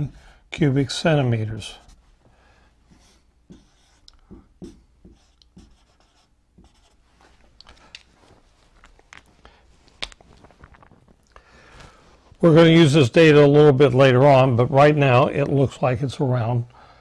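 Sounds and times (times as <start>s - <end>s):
marker writing on whiteboard: 2.9s - 7.1s.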